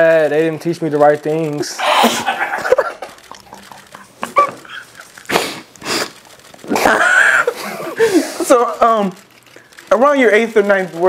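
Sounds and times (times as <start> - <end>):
breathy bursts of laughter: 1.7 - 5.7, 6.7 - 8.5.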